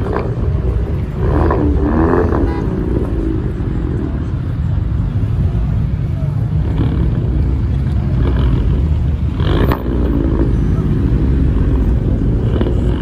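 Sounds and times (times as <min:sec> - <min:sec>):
cars running: 0:00.0 - 0:13.0.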